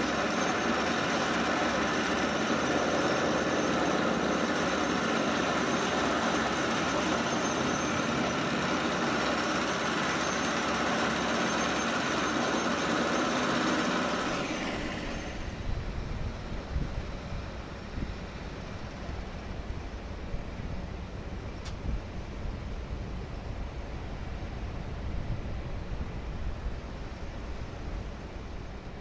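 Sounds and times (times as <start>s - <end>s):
heavy construction machinery: 0.0s - 21.4s.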